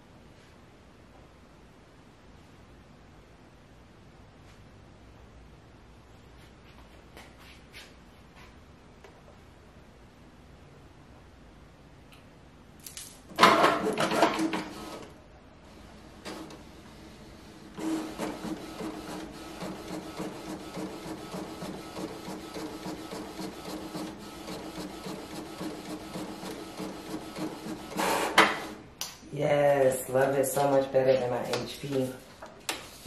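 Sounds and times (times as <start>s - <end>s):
inkjet printer whirring: 13.4s - 28.8s.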